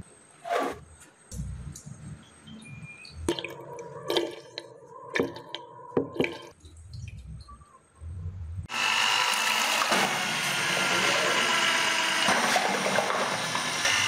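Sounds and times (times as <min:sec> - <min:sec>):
loud motor: 0:08.7 - 0:14.0.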